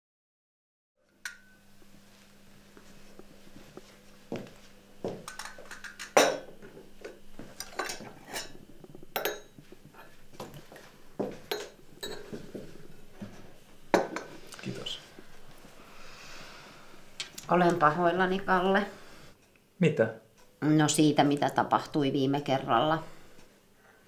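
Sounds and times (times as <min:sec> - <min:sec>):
faint steady hum: 0:01.0 - 0:24.0
cups and saucers clinking: 0:05.2 - 0:14.7.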